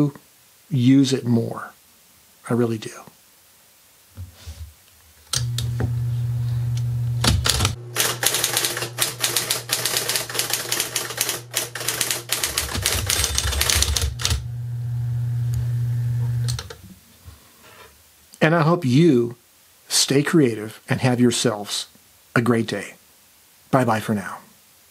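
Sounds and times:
typewriter motor humming: 5.4 - 14.6, 15.5 - 16.8
rapid electric typewriter keystrokes: 7.2 - 14.4.

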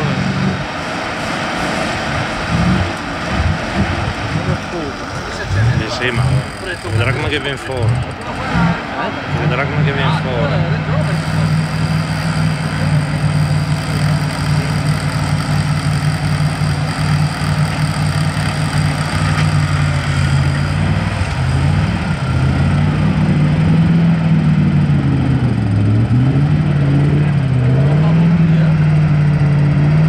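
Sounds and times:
off-road vehicle engine revving: 0.0 - 30.0
wheels spinning in mud: 0.0 - 30.0.

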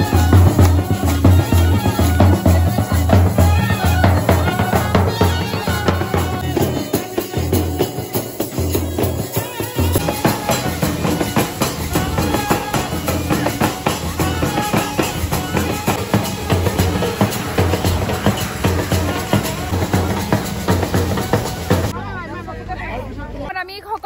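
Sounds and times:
music with drum beat and bass: 0.0 - 22.0.

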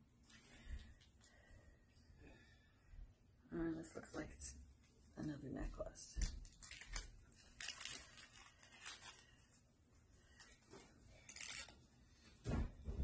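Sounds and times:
rustling of jewelry packaging: 6.4 - 9.6, 10.4 - 11.8.

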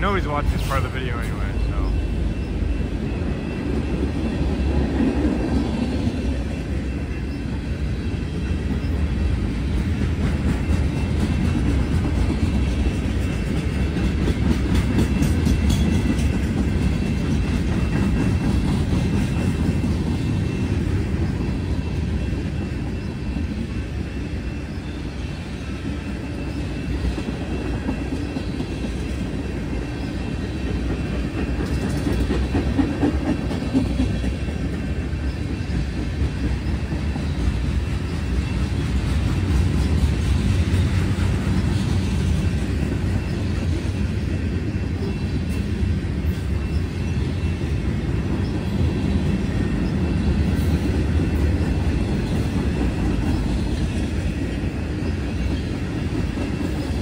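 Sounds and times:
steel wheels rumbling on rail: 0.0 - 57.0
wheels clicking over rail joints: 9.7 - 21.3, 27.1 - 43.8.

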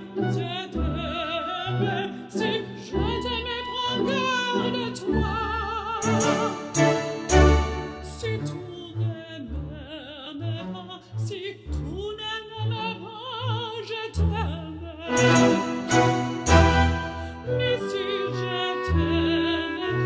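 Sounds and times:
orchestral accompaniment: 5.9 - 8.8, 15.1 - 19.4.

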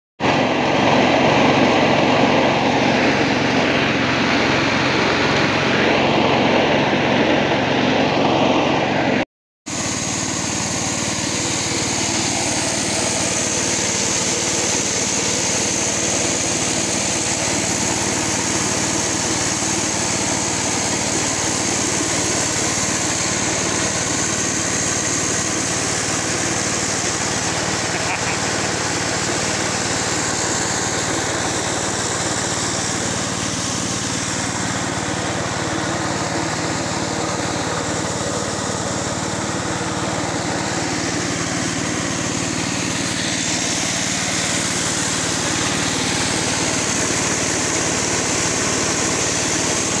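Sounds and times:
coffee huller machine running: 0.2 - 50.0.

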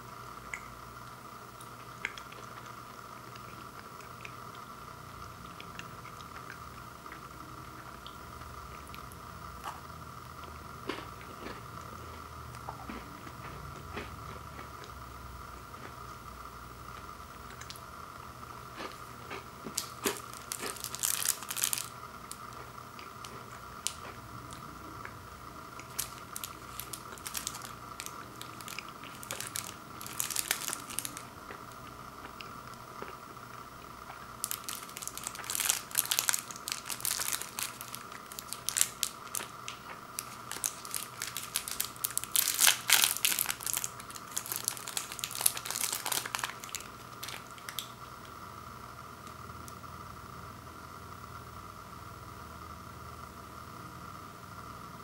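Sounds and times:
plastic wrappers crinkling: 19.7 - 24.2, 25.8 - 31.3, 34.4 - 48.0.

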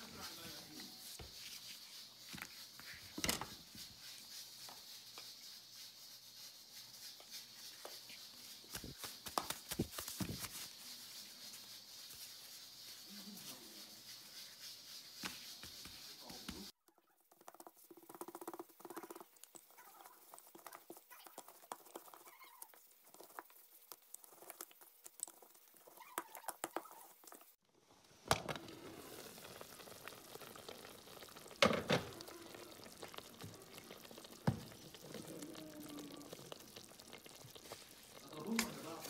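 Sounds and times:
steady hiss: 0.0 - 16.7, 27.8 - 39.0
hands patting dough: 0.0 - 27.5, 29.2 - 39.0
rolling pin rolling dough: 10.0 - 23.6.

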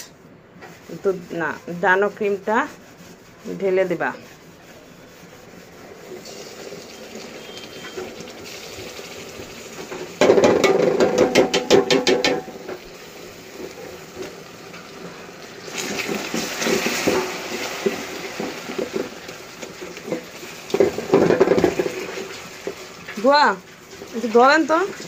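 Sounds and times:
spatula scraping a metal pot: 0.0 - 8.8, 16.0 - 25.0
loud crackling of hot caramel: 6.1 - 10.7, 12.6 - 24.6.

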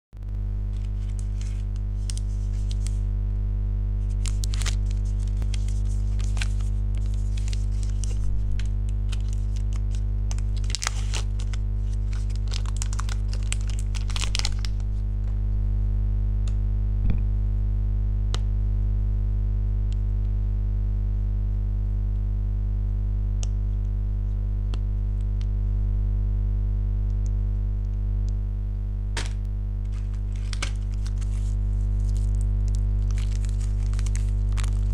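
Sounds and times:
steady low hum: 0.2 - 34.9
plastic wrappers crinkling: 0.7 - 3.0, 4.0 - 15.0, 29.2 - 34.9.

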